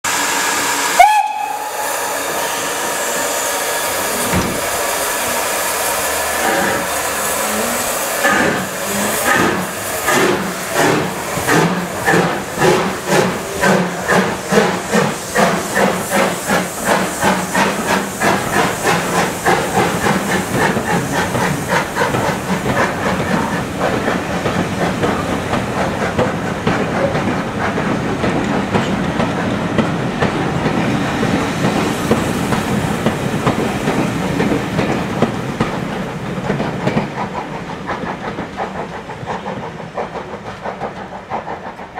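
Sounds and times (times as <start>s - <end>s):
steam locomotive whistle: 0.1s - 3.3s
locomotive chuffing: 0.1s - 41.9s
steam hissing: 0.1s - 41.9s.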